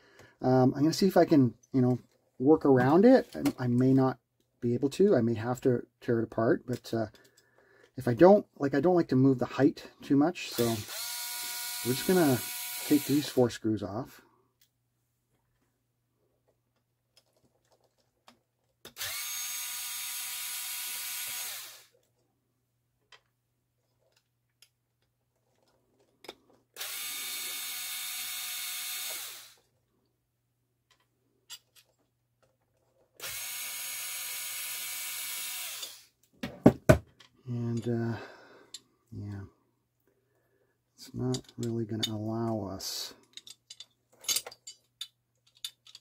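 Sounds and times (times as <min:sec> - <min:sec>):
electric screwdriver running: 0:10.6 - 0:13.4, 0:18.9 - 0:22.0, 0:26.8 - 0:29.6, 0:33.2 - 0:36.1.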